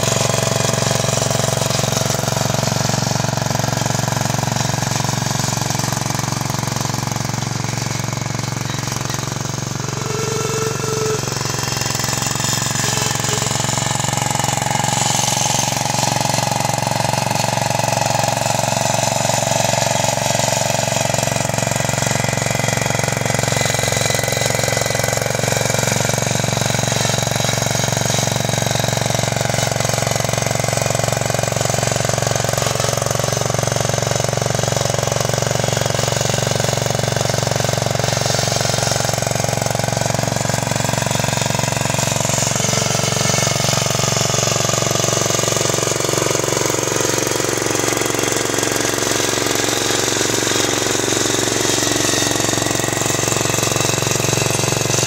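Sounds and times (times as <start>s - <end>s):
blade pushing snow: 0.0s - 11.5s, 36.1s - 55.0s
small tractor engine chattering: 0.0s - 55.0s.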